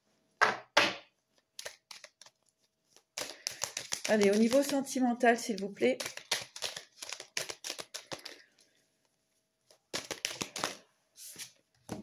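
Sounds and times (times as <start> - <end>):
cards being shuffled: 1.3 - 8.5, 9.6 - 12.0.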